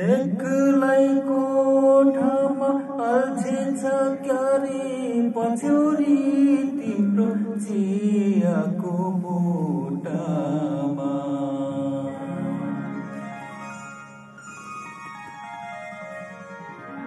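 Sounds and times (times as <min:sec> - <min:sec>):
man singing into microphone: 0:00.0 - 0:13.0
sustained musical accompaniment: 0:10.1 - 0:17.0.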